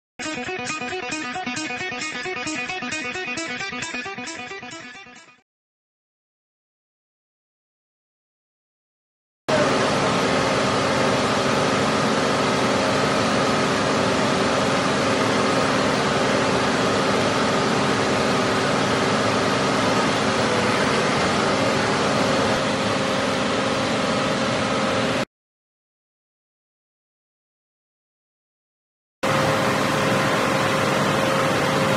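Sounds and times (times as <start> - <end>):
hydraulic press hum and whine: 9.5 - 25.2, 29.2 - 31.9.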